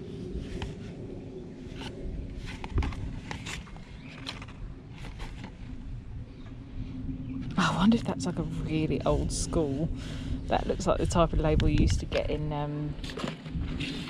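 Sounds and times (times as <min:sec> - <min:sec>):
cardboard and paper rustling: 0:01.8 - 0:05.7.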